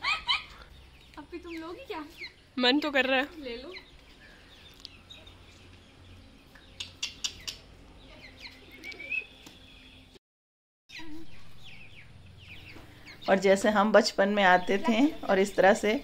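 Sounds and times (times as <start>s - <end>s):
chicken squawks: 0.0s - 0.8s
chick chirping: 0.0s - 10.2s, 10.9s - 16.0s.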